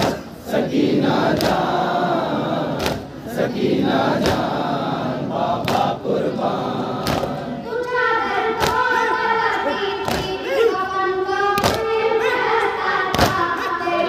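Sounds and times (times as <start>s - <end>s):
men chanting in unison: 0.0s - 7.7s
young voice over loudspeaker: 7.4s - 14.0s.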